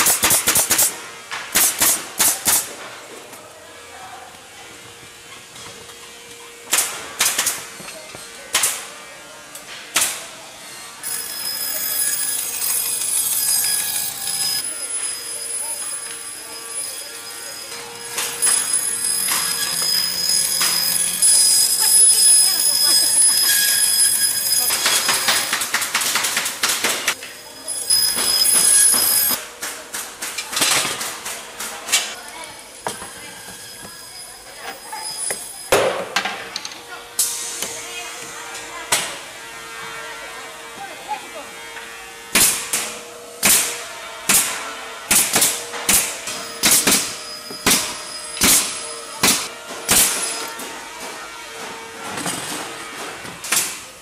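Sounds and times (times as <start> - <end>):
pneumatic nailers firing: 0.0 - 3.0, 6.6 - 8.9, 18.0 - 27.2, 27.9 - 32.1, 42.3 - 54.0
machine high whine: 10.5 - 25.8, 27.1 - 29.5, 45.6 - 52.3.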